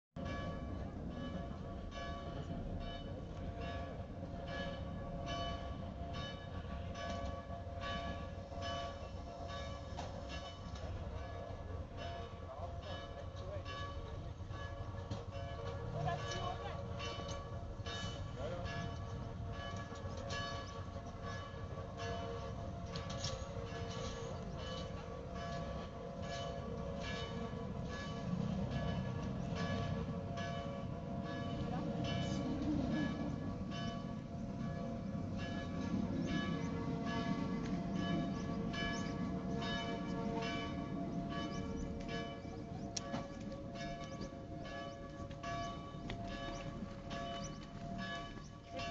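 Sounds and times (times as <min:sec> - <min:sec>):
train rumble: 0:00.2 - 0:48.9.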